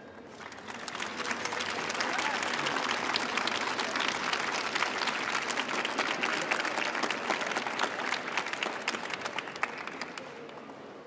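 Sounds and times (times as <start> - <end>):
audience applauding: 0.3 - 10.7.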